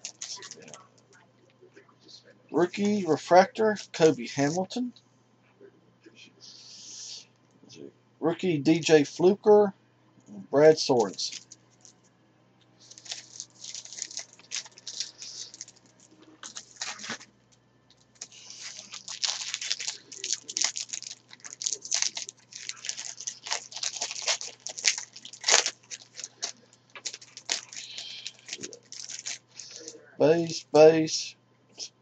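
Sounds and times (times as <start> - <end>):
wrapper tearing and crinkling: 0.0 - 0.8, 11.0 - 12.0, 12.8 - 17.3, 17.9 - 29.9.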